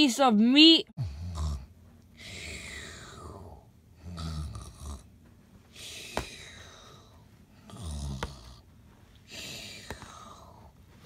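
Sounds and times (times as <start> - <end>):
low rumbling snores: 1.0 - 5.1, 5.8 - 8.7.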